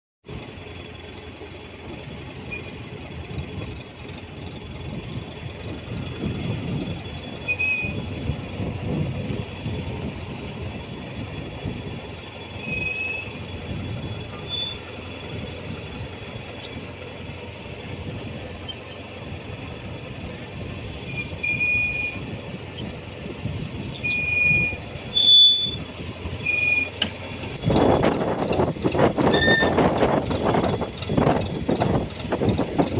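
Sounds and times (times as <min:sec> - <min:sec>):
short high squeaks: 0:02.4 - 0:02.8, 0:07.4 - 0:08.1, 0:12.6 - 0:13.4, 0:14.3 - 0:15.6, 0:18.6 - 0:19.2, 0:20.2 - 0:20.5, 0:21.1 - 0:22.2, 0:24.0 - 0:28.4, 0:29.1 - 0:29.9.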